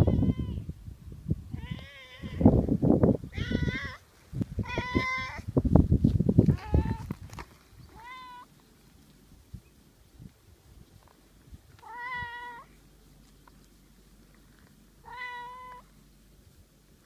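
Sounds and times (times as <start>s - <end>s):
cat meowing: 1.5s - 2.5s, 3.3s - 4.0s, 4.6s - 5.4s, 6.5s - 7.1s, 7.9s - 8.5s, 11.8s - 12.7s, 15.0s - 15.9s.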